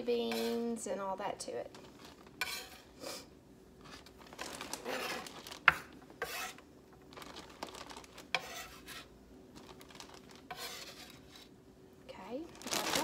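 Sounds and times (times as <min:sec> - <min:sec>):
knife scraping on cutting board: 0:00.3 - 0:00.6, 0:02.4 - 0:02.9, 0:04.9 - 0:06.6, 0:08.3 - 0:09.1, 0:10.5 - 0:11.5.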